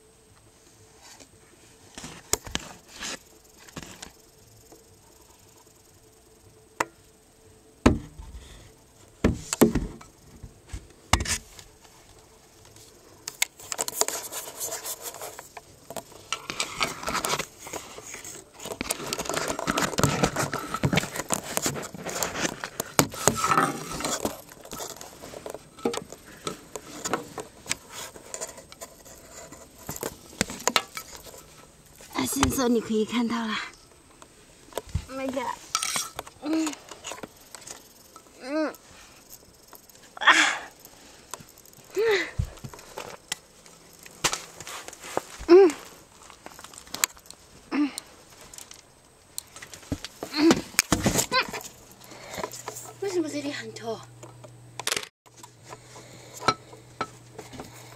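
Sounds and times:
rustling and scraping in insulation: 0.5 - 5.8, 7.8 - 33.6, 34.2 - 40.2, 40.8 - 54.0
knocks and bumps: 7.8 - 8.4, 9.2 - 11.5.

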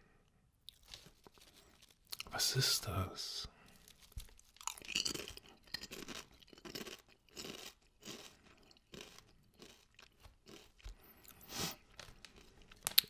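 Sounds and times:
potato chips being chewed: 0.6 - 2.4, 3.7 - 13.0.

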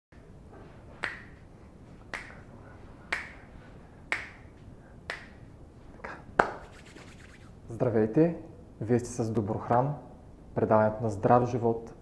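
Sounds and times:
finger snaps: 1.0 - 1.4, 2.1 - 2.5, 3.1 - 3.5, 4.1 - 7.4.

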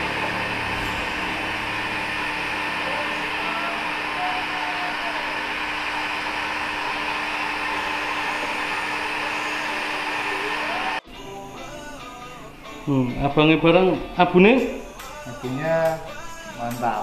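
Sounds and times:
heat gun blowing: 0.0 - 11.0.

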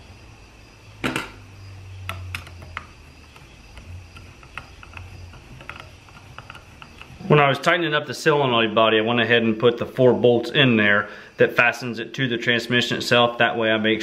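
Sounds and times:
metal parts clicking and knocking: 2.1 - 7.2.

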